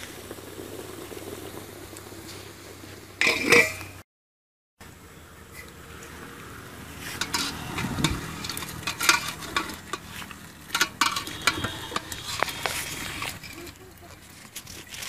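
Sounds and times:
steady sizzling hiss: 0.0 - 4.0
metal ladle scraping pot: 3.2 - 4.0, 6.9 - 15.0.

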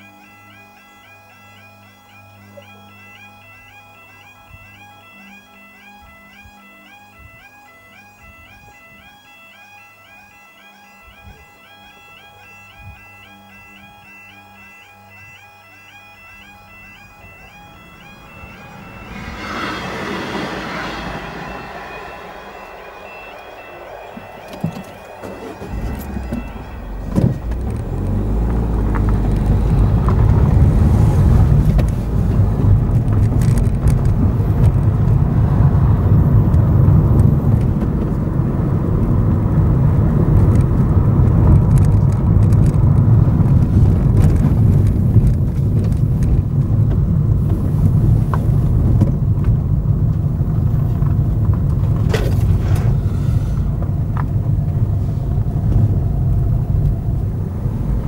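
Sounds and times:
car engine and tyre rumble: 17.0 - 58.0.

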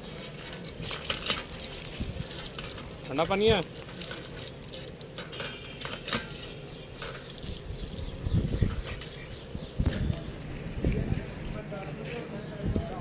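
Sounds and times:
water pattering on ground: 0.8 - 8.6.

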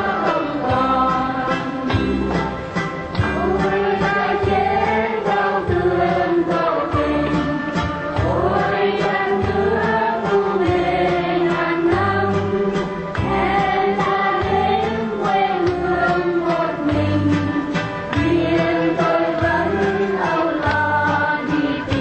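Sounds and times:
group of voices singing: 0.0 - 22.0
instrumental accompaniment with bass: 0.0 - 22.0.

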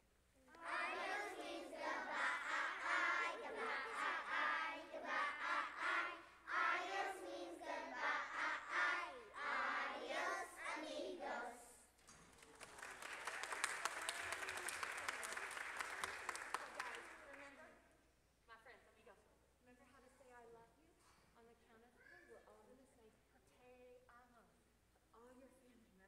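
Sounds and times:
children singing together: 0.5 - 11.8
audience applause: 12.4 - 17.2.

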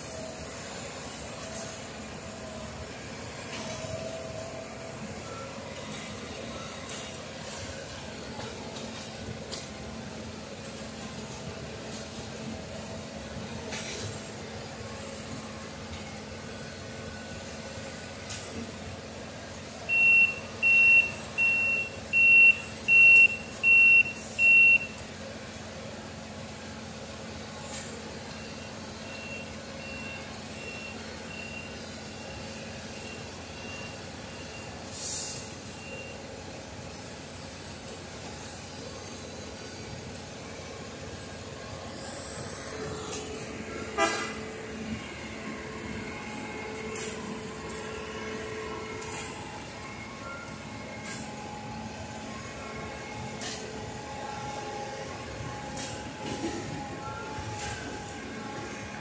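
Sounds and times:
machine engines running: 0.0 - 19.9, 35.5 - 59.0
backup alarm beeping: 19.9 - 25.0, 44.8 - 59.0
short hiss: 34.9 - 35.5.

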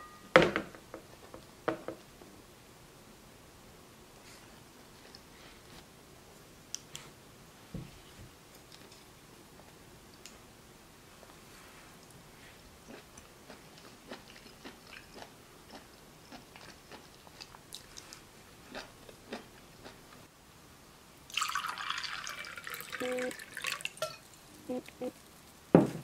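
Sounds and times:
quiet chewing: 12.0 - 20.3
wine pouring into glass: 21.3 - 24.3.

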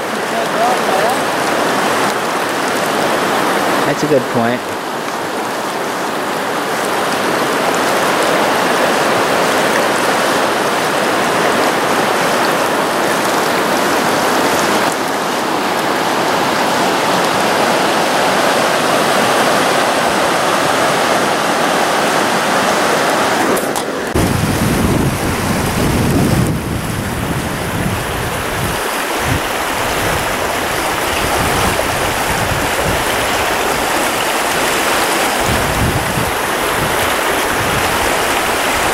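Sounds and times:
creek water rushing over rocks: 0.0 - 38.9
wind buffeting microphone: 24.1 - 34.6, 35.3 - 38.9.

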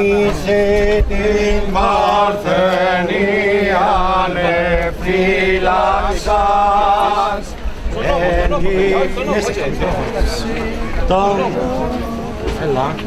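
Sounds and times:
men singing chant: 0.0 - 12.6.

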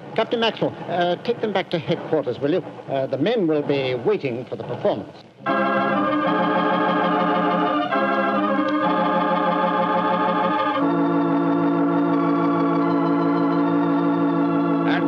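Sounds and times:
organ chords: 5.4 - 15.0.

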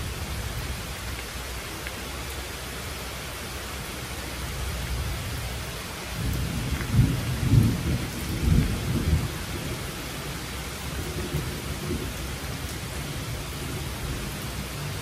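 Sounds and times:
steady rain falling: 0.0 - 15.0
low rumble of thunder: 4.7 - 15.0.

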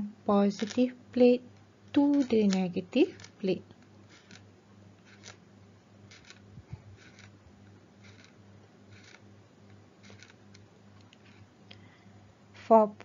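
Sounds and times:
low steady hum: 0.0 - 13.0
stylus scratching on tablet: 0.5 - 1.4, 2.0 - 5.4, 6.0 - 7.4, 8.0 - 9.2, 10.0 - 10.4, 11.2 - 11.5.

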